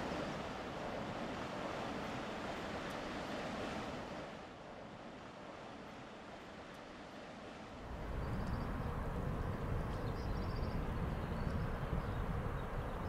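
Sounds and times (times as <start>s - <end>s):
wind noise: 7.8s - 13.0s.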